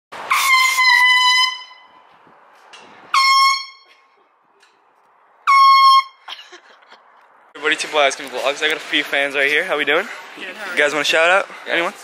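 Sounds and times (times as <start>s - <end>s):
air horn blasts: 0.2s - 2.1s, 3.1s - 3.9s, 5.4s - 6.2s.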